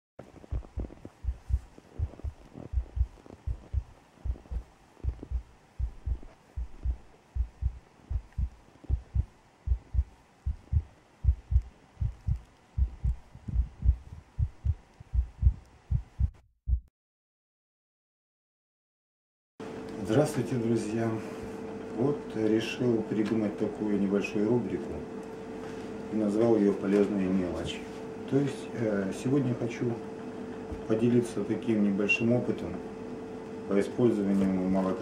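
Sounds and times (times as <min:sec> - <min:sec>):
heartbeat double thumps: 0:00.3 - 0:16.9.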